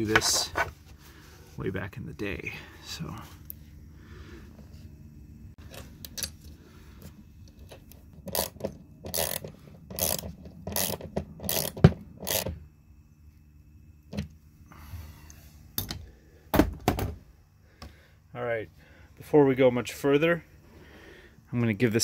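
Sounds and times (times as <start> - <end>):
ratchet wrench clattering: 8.3 - 12.5.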